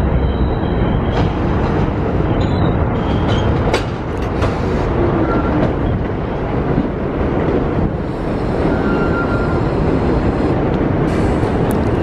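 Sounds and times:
train wheels rumbling on rails: 0:00.0 - 0:12.0
wheels clacking over rail joints: 0:01.0 - 0:07.9.

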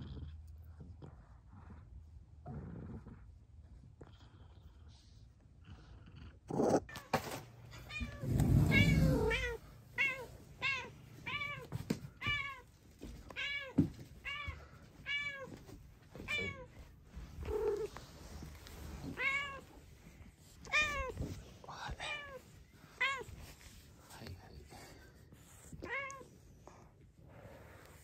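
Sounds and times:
dull low rumble: 0:08.0 - 0:09.8.

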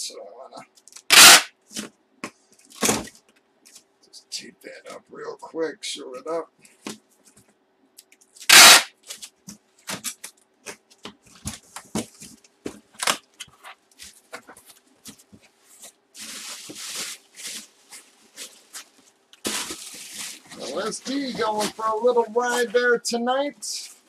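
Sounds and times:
tape ripping off roll: 0:01.0 - 0:01.9, 0:19.4 - 0:21.7
plastic wrapping crinkling: 0:08.2 - 0:22.8.

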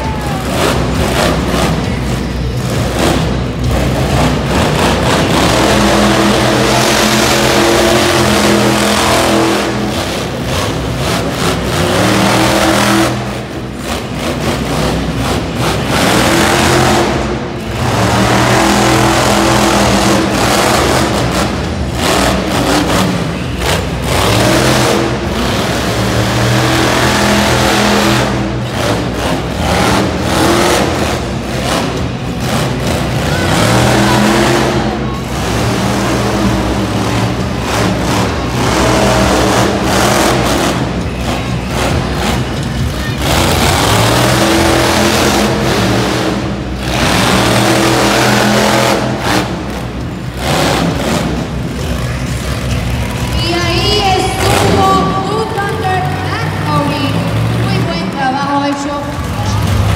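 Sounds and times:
truck engine revving hard: 0:00.0 - 0:59.9.

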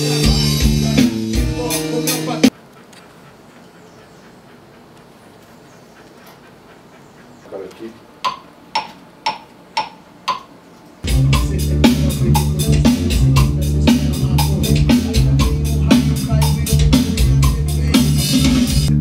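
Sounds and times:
electric bass guitar: 0:00.0 - 0:02.5, 0:11.0 - 0:19.0
drum track: 0:00.0 - 0:02.6, 0:08.2 - 0:19.0
click count-in ticks: 0:07.7 - 0:10.5.

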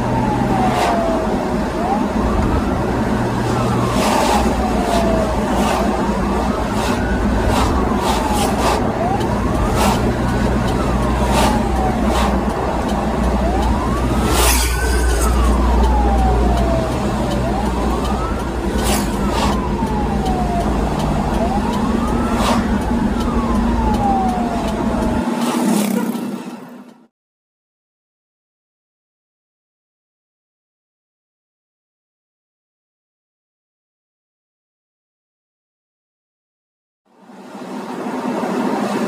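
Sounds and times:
ambulance siren wailing: 0:00.0 - 0:27.1
vehicle engine and road noise: 0:00.0 - 0:27.1, 0:37.1 - 0:39.0.

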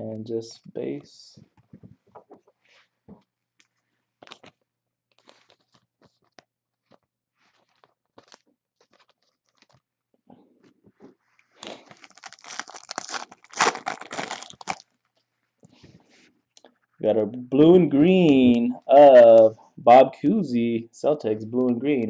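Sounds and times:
foil wrapper crackling: 0:11.8 - 0:15.1.

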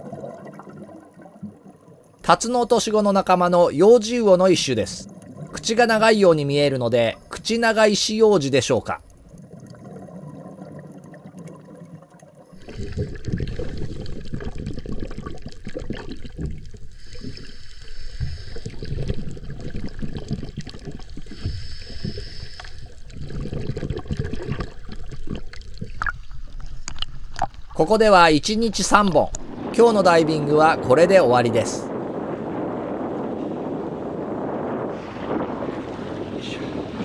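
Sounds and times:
underwater bubbling: 0:00.0 - 0:37.0
steady underwater hiss: 0:01.6 - 0:15.0, 0:16.7 - 0:24.9.

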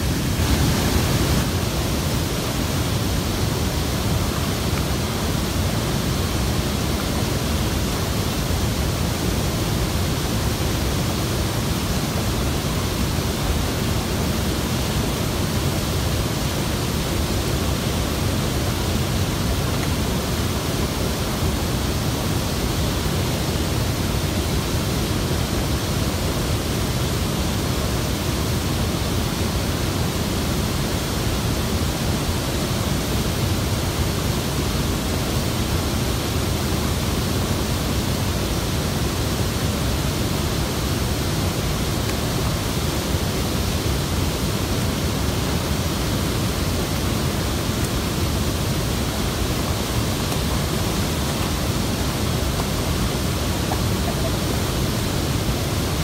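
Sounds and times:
water rushing over spillway: 0:00.0 - 0:56.0.

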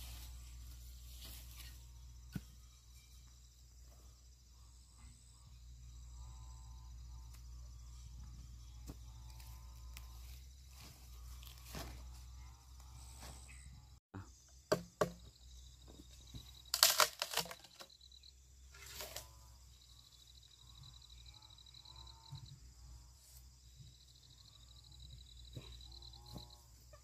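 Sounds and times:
crackling tearing noises: 0:16.7 - 0:17.8.

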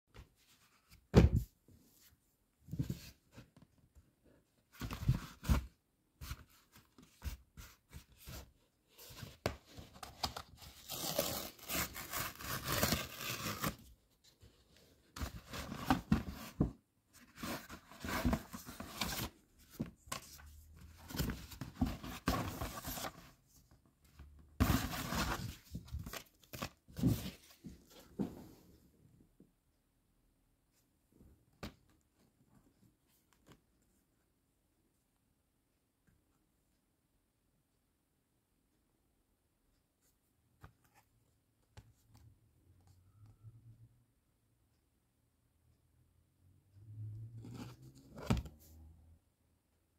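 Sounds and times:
cardboard tearing and rustling: 0:10.1 - 0:13.9.

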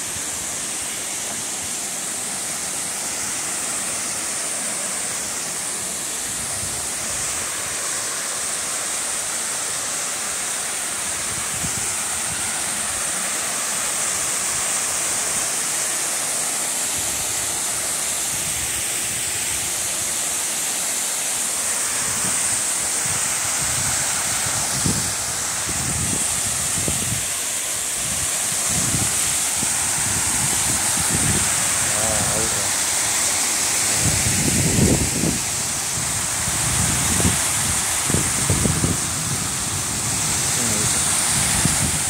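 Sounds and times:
waterfall rushing: 0:00.0 - 0:42.0
wind buffeting microphone: 0:22.0 - 0:27.4, 0:28.0 - 0:32.7, 0:33.9 - 0:42.0.

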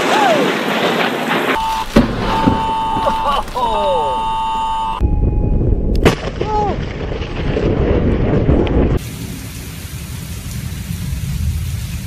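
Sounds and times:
sharp thunder crack: 0:01.3 - 0:03.6, 0:05.0 - 0:09.4
person shouting: 0:01.7 - 0:05.0, 0:06.4 - 0:06.8
low rumbling thunder: 0:05.0 - 0:09.6, 0:10.2 - 0:12.0
hiss: 0:09.0 - 0:12.0.

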